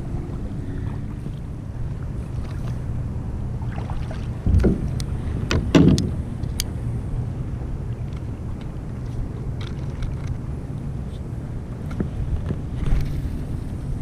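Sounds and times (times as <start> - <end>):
wind and water rumble: 0.0 - 14.0.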